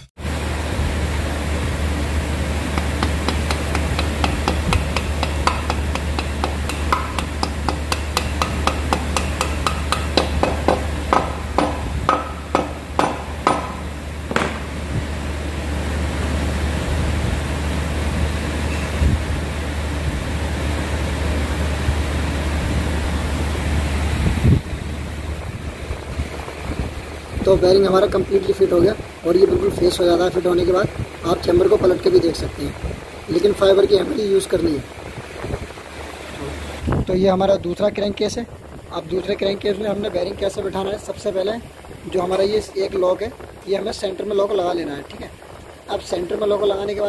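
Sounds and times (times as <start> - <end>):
steady low hum: 0.0 - 47.0
hammer tapping bearing into metal: 2.7 - 14.8.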